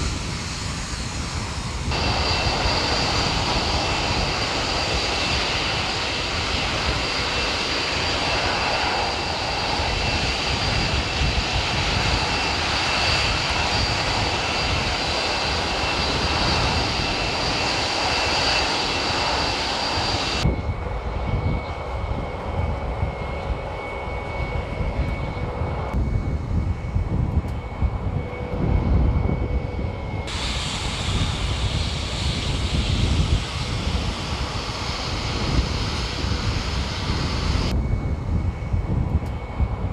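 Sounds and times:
jet engines roaring: 0.0s - 39.9s.

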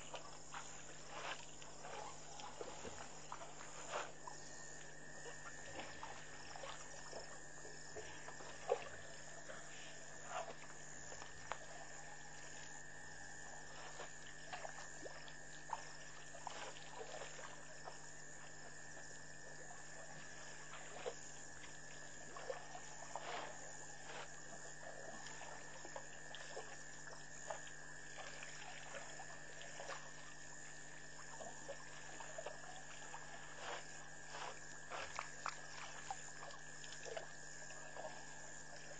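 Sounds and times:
frogs and insects chorus: 0.0s - 38.9s
water splashing and pouring: 27.5s - 38.9s.

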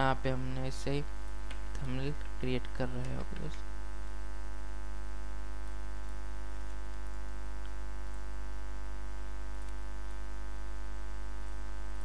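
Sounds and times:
electrical mains hum: 0.0s - 12.0s
faint ticks: 5.6s - 8.3s, 9.5s - 10.3s, 11.4s - 12.0s.

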